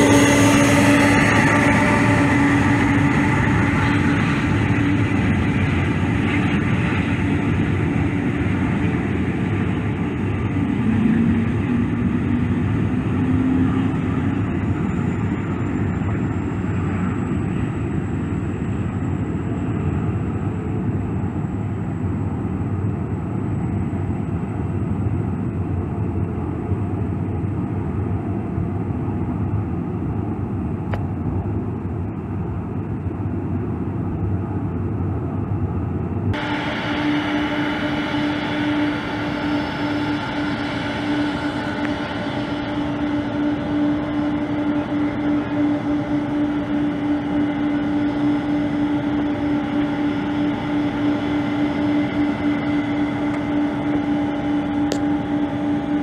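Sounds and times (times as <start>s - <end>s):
jet engines rumbling and whining: 0.0s - 56.0s.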